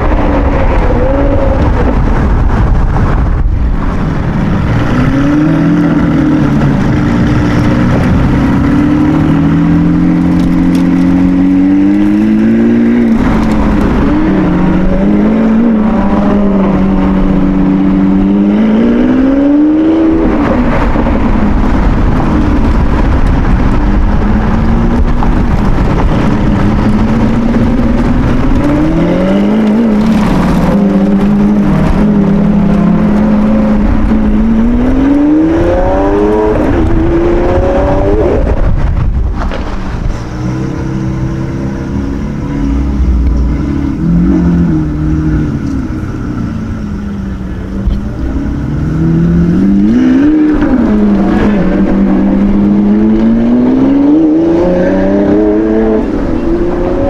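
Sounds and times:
car engines revving: 0.0 - 57.0.

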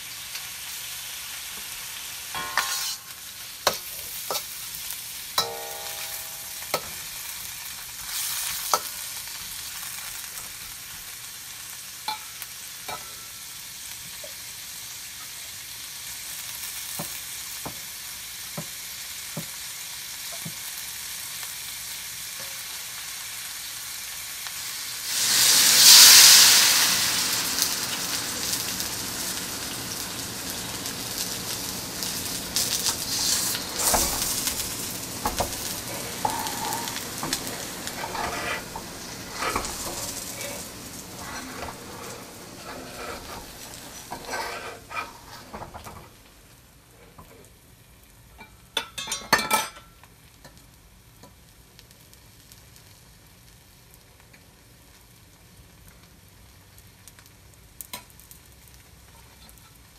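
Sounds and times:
food sizzling in a pan: 0.0 - 59.9
utensil tapping a pan: 2.4 - 3.0, 5.4 - 7.0, 32.6 - 46.0.

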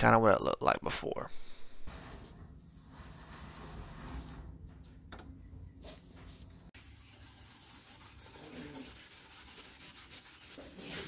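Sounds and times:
hand sanding metal: 1.9 - 4.4, 6.8 - 11.0.

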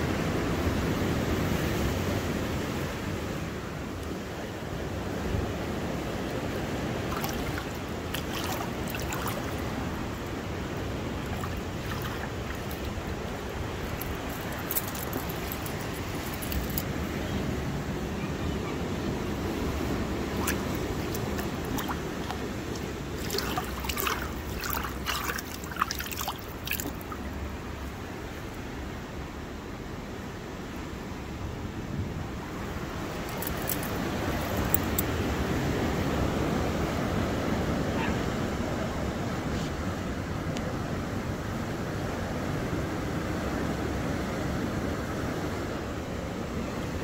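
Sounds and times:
surf rushing over rocks: 0.0 - 18.0, 19.0 - 28.7
small water splashes: 6.0 - 16.9, 19.4 - 28.5, 33.1 - 35.1
water trickling among stones: 6.5 - 16.9, 19.7 - 28.0, 33.1 - 35.1.

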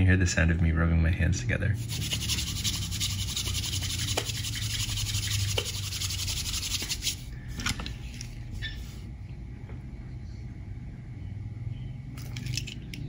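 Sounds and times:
hands rubbing together: 1.8 - 7.3.

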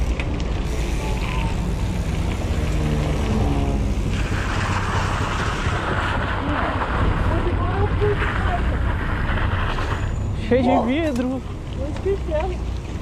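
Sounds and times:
hiss: 0.0 - 2.8, 3.8 - 6.7
car engines passing: 0.0 - 13.0
street traffic rumble: 0.0 - 13.0.

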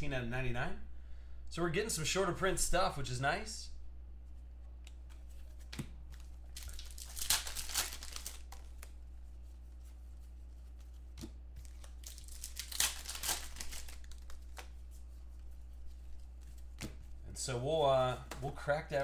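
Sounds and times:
foil wrapper crinkling and tearing: 6.4 - 8.9, 11.6 - 14.8.

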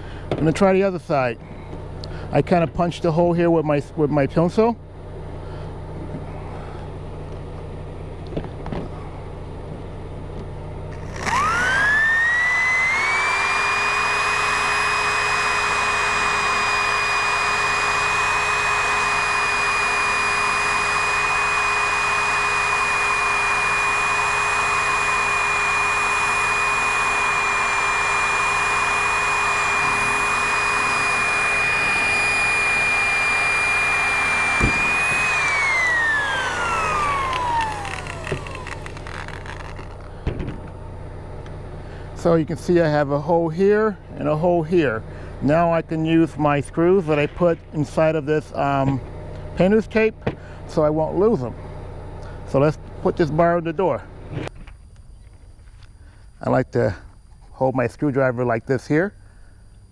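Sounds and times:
electric drill whining: 10.9 - 40.8.

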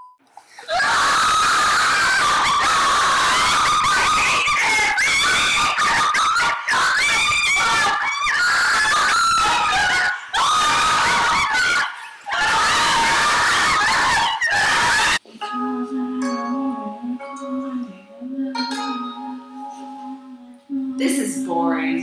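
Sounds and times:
people screaming and shrieking: 0.6 - 15.2.

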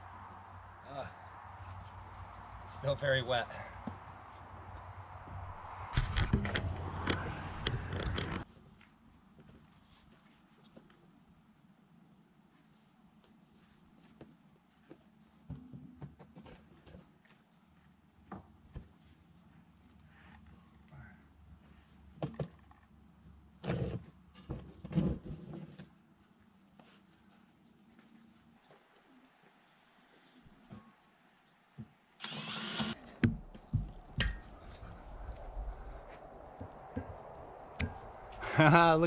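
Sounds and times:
high-pitched insect chorus: 0.0 - 16.2, 25.7 - 39.0
faint taps and steps: 33.2 - 38.4.

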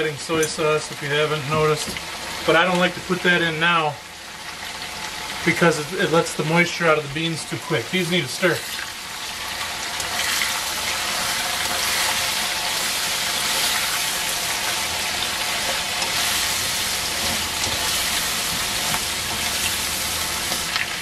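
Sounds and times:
vegetables sizzling in a wok: 0.0 - 21.0
spatula stirring in a wok: 10.0 - 21.0.

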